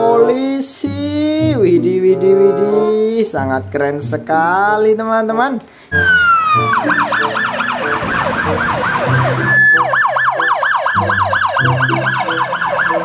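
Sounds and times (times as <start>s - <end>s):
police siren yelping: 5.9s - 13.0s
steady siren tone: 5.9s - 13.0s.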